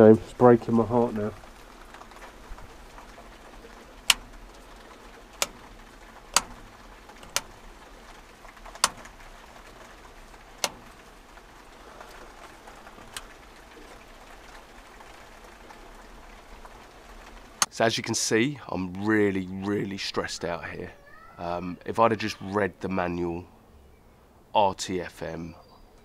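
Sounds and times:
rocker switch clicks: 0:04.0 - 0:04.5, 0:05.4 - 0:07.7, 0:08.7 - 0:09.2, 0:10.6 - 0:11.0.

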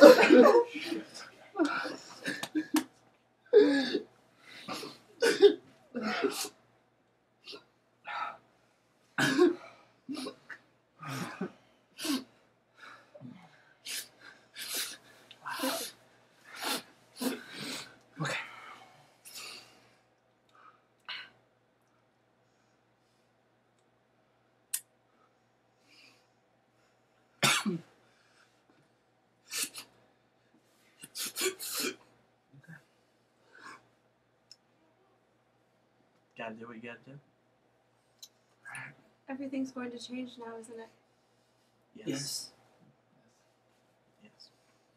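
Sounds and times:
person coughing and exhaling: 0:00.0 - 0:02.8, 0:03.6 - 0:04.1, 0:04.7 - 0:06.6, 0:09.2 - 0:12.3, 0:13.9 - 0:18.6, 0:27.4 - 0:27.9, 0:31.0 - 0:32.0.

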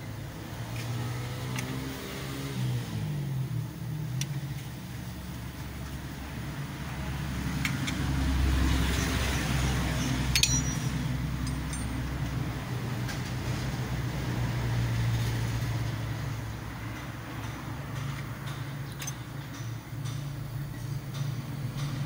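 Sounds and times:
light metallic clicks: 0:07.5 - 0:08.1, 0:10.0 - 0:12.4, 0:16.9 - 0:22.0.

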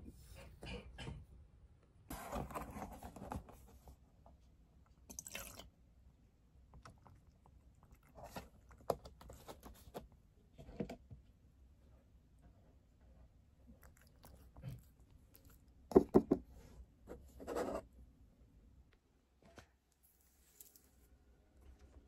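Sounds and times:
cat chewing: 0:13.7 - 0:15.9.

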